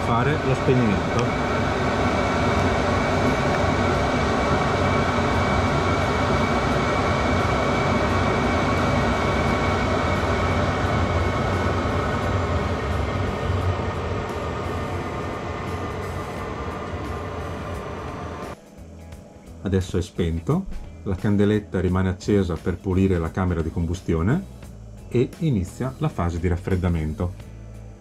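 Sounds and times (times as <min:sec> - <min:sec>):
heater blower rushing: 0:00.0 - 0:18.7
faint high whine: 0:00.0 - 0:28.0.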